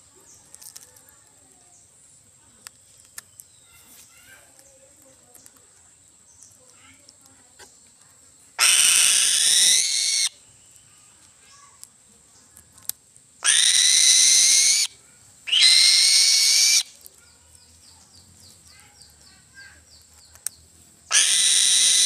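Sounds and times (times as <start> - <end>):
eagle calling: 8.6 - 10.4, 13.4 - 17.0, 21.1 - 22.0.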